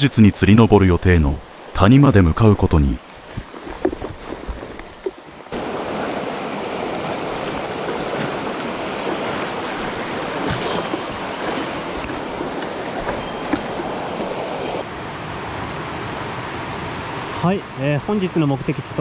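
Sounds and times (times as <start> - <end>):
stream flowing over rocks: 3.0 - 15.6
soft footsteps: 6.7 - 14.8.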